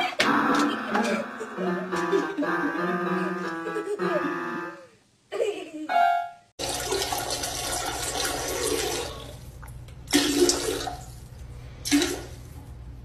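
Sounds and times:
toilet flushing: 6.6s - 12.5s.

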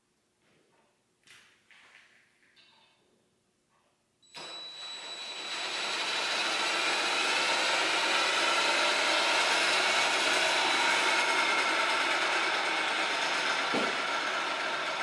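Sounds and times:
cordless drill spinning a blade: 4.4s - 15.0s.

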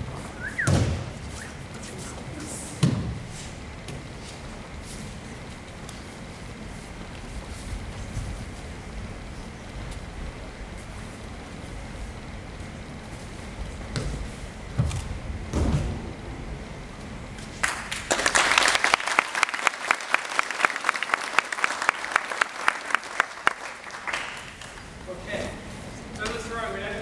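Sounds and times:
heavy thuds on a mat: 0.6s - 1.2s
audience applause: 17.6s - 24.9s.

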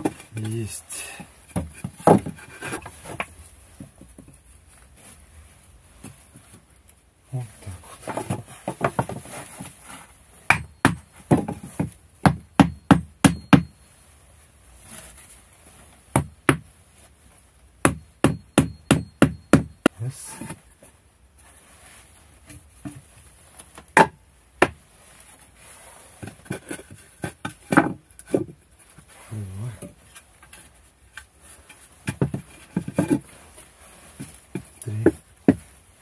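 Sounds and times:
sharp knocks on wood: 10.5s - 13.7s, 17.8s - 19.8s.

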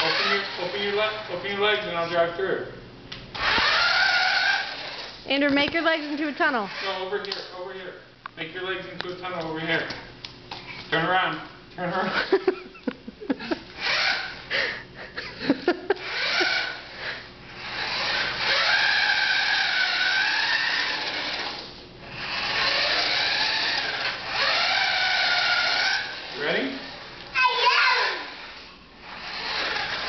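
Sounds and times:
toy truck motor whining: 0.0s - 1.0s, 3.3s - 5.2s, 13.8s - 14.4s, 16.0s - 30.0s.

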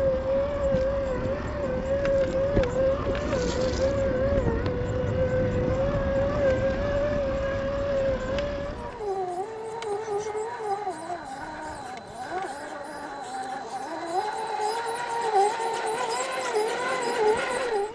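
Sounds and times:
electric motor whining: 0.0s - 17.9s
small clicks: 1.8s - 7.4s, 8.0s - 17.9s.

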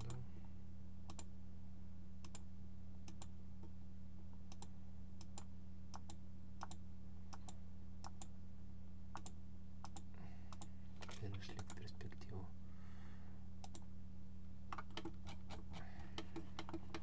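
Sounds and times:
low electrical hum: 0.0s - 17.0s
computer mouse clicking: 1.1s - 1.3s, 2.2s - 2.4s, 3.1s - 3.3s, 4.5s - 8.3s, 9.1s - 11.9s, 13.6s - 13.9s, 14.7s - 17.0s.

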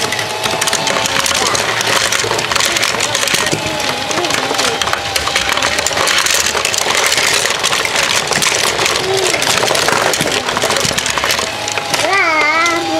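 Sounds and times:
motorized toy lift running: 0.0s - 12.9s
toy cars clattering on plastic track: 0.0s - 12.9s.

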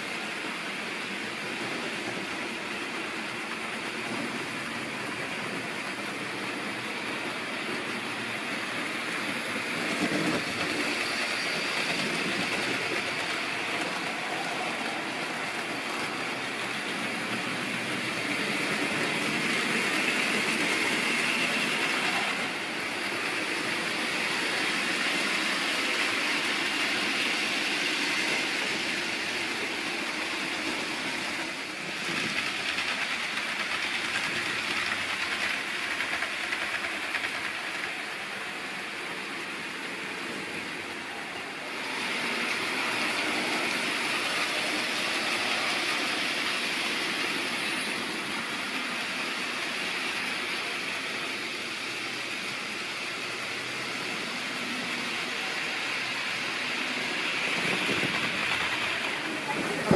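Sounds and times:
model train wheels clattering: 7.2s - 40.0s, 42.3s - 59.9s.

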